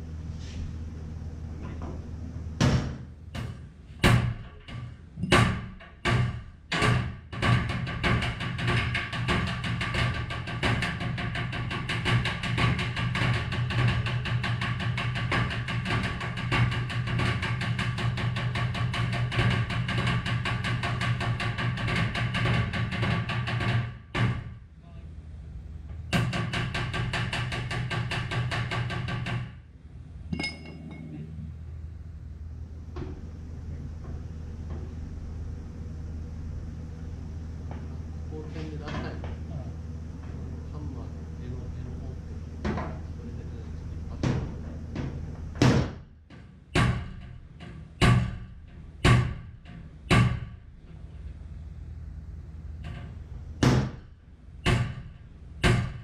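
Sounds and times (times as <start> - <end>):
heavy knocks on sheet metal: 2.6 - 24.6, 26.1 - 29.6, 44.2 - 50.6, 53.6 - 56.0
metallic clink: 30.3 - 31.1
hammer tapping metal panel: 44.2 - 50.5, 52.8 - 56.0.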